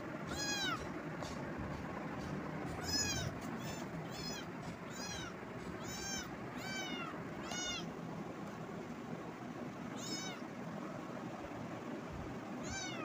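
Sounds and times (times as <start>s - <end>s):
kitten meowing: 0.3s - 0.9s, 2.8s - 7.9s, 9.9s - 10.4s, 12.6s - 13.0s.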